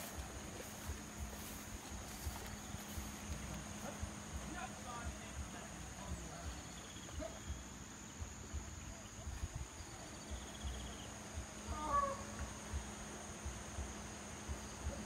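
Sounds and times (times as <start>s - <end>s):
insects trilling: 0.0s - 15.0s
distant call: 10.7s - 12.9s.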